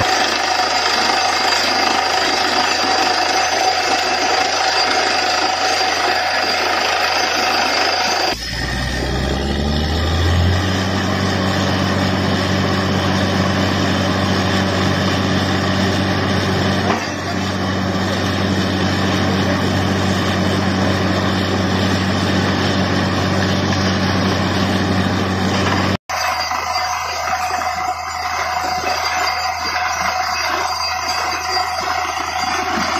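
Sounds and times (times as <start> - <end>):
drilling rig rushing noise: 0.0 - 32.9
heavy engine drone: 0.0 - 32.9.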